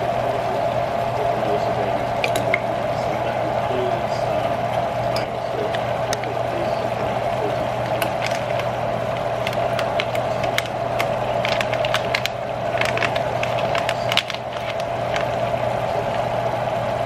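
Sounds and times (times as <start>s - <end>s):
crackles and pops: 7.4s - 16.4s.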